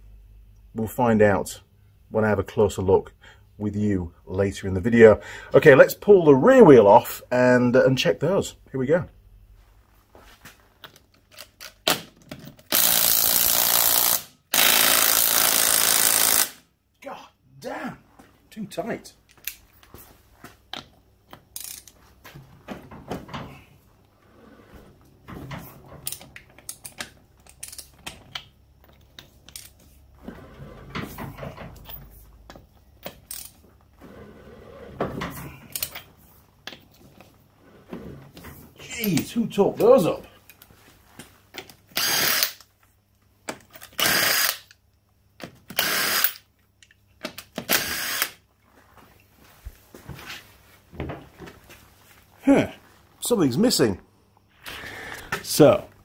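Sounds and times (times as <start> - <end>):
cordless impact wrench hammering: 12.7 - 16.6
socket ratchet clicking: 26.1 - 28.5, 43.8 - 44.8.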